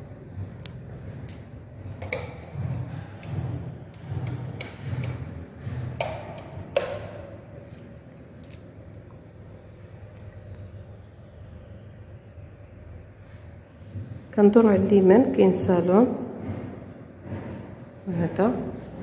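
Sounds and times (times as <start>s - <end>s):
sharp clicks and knocks: 0.6s - 8.7s.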